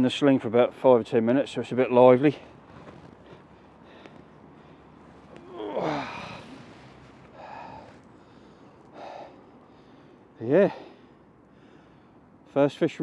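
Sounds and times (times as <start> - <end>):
short quiet breaths: 2.4 - 12.5
man sighing: 5.3 - 6.8.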